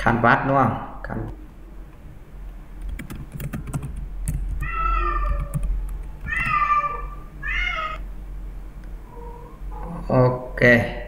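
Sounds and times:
keyboard keys clicking: 2.8 - 6.6
cat meowing: 4.6 - 8.0.

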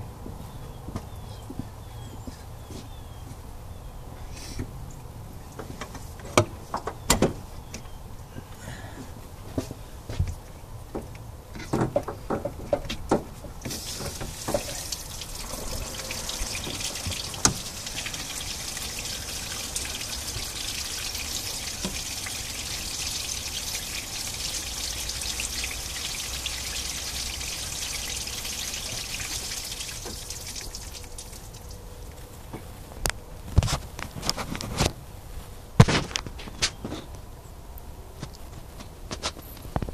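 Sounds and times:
water pouring and splashing: 13.6 - 32.2.

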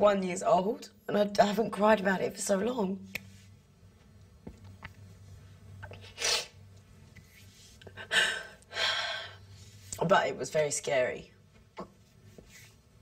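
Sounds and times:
woman sniffing: 6.0 - 6.6.

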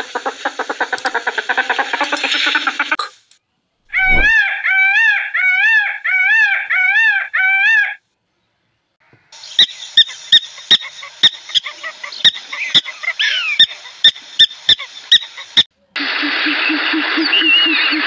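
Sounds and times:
sharp clicking chirps: 2.0 - 3.1
peacock wailing calls: 3.9 - 8.0, 10.0 - 15.6.

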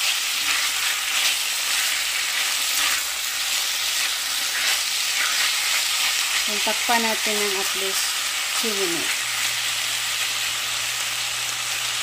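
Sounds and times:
spatula stirring in a pot: 0.0 - 9.3
chicken and onions sizzling in oil: 0.0 - 12.0.

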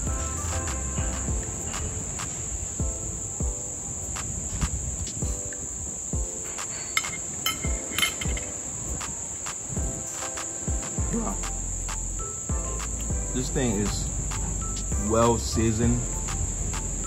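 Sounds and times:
insects chirping: 0.0 - 17.0.

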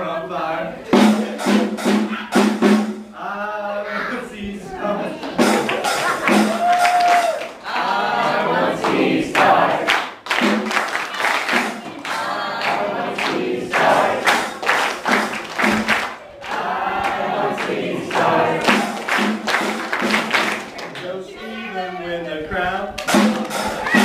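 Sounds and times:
voices singing: 0.0 - 2.5, 3.1 - 24.0
music: 0.9 - 3.2, 5.3 - 7.6, 8.2 - 20.7, 23.0 - 24.0.

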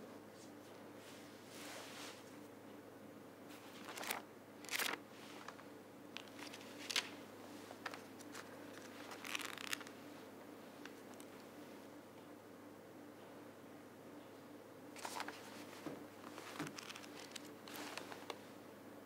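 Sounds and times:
faint steady hum: 0.0 - 19.0
book pages rustling: 3.5 - 10.0, 15.0 - 18.4.

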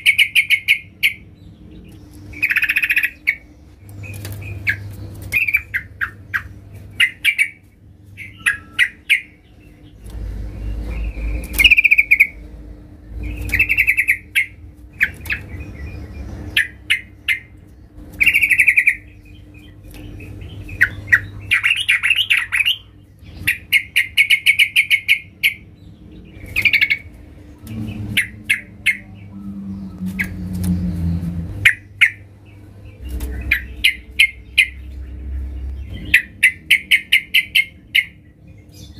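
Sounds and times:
bird chattering calls: 0.0 - 12.5, 13.2 - 17.6, 18.2 - 27.1, 27.7 - 38.2
sharp bird clicks: 11.0 - 12.4, 13.2 - 15.6.

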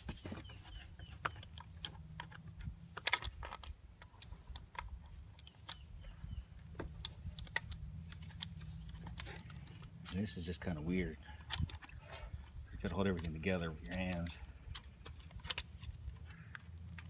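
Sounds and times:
small metal clicks and taps: 11.4 - 17.0.

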